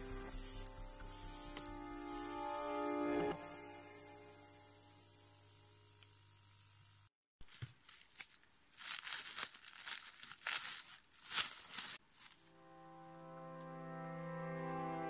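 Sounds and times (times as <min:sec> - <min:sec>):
faint background music: 0:00.0 - 0:05.2
plastic film crinkling and tearing: 0:07.4 - 0:12.5.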